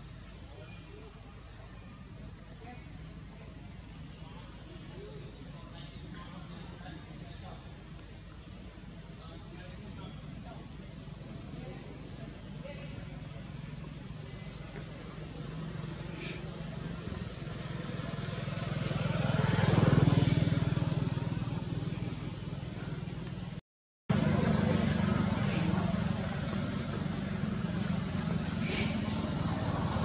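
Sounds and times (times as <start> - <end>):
low engine hum: 13.5 - 30.0
road vehicle passing: 13.5 - 30.0.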